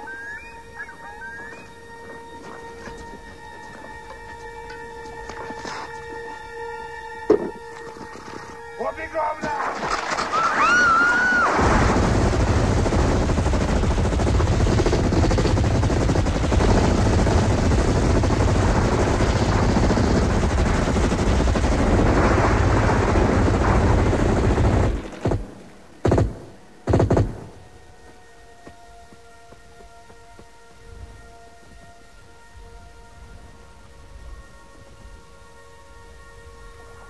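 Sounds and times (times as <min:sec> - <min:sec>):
automatic rifles firing: 0:24.8 - 0:27.5.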